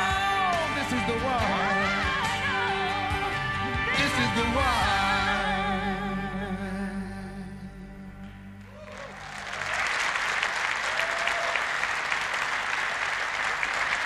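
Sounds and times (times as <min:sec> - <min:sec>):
large audience applauding: 0:08.7 - 0:14.0.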